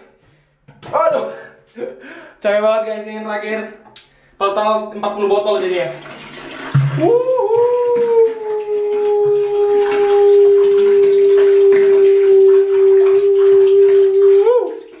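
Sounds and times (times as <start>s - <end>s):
long howl: 7.1s - 11.2s.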